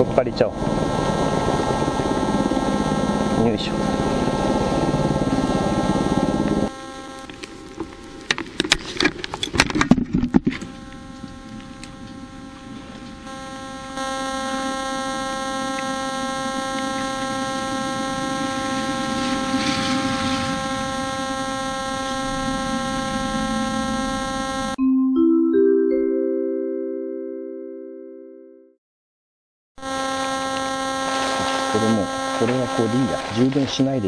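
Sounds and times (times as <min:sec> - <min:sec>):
electrical hum with whining tones: 0:00.0 - 0:24.8, 0:29.8 - 0:34.0
camera knocks and clatter: 0:07.3 - 0:10.7.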